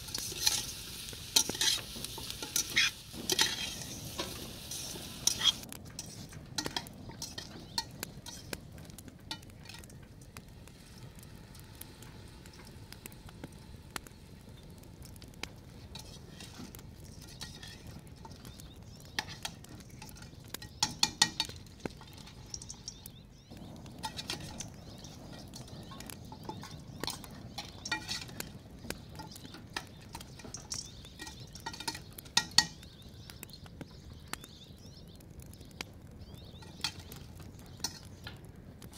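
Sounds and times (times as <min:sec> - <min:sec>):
utensils scraping a metal pot: 0:00.0 - 0:08.6, 0:15.8 - 0:23.1, 0:23.8 - 0:32.9, 0:36.6 - 0:38.4.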